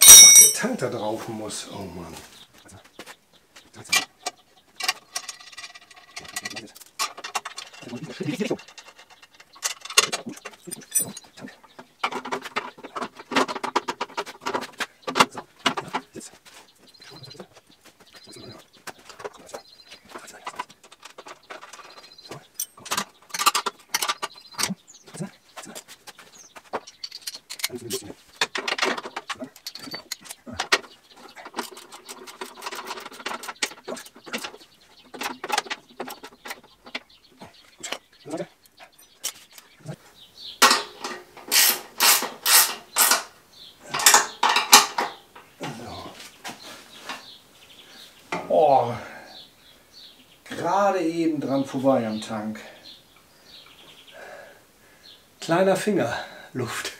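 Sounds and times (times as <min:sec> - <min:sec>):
clicks and knocks of metal parts: 0:00.0 - 0:00.7, 0:03.8 - 0:16.3, 0:18.4 - 0:39.8, 0:40.6 - 0:45.8
metal muffler clinking and knocking: 0:00.0 - 0:00.7, 0:26.8 - 0:37.2, 0:43.9 - 0:45.5.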